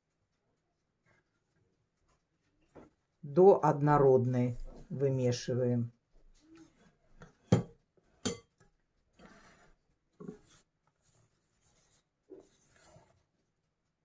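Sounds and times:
spatula knocking against bowl: 0:07.5 - 0:08.6
spatula scraping metal bowl: 0:09.1 - 0:10.6.

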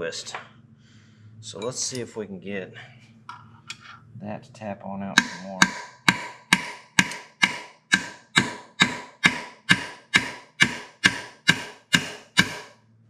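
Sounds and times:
hammer tapping metal punch: 0:05.2 - 0:12.7.

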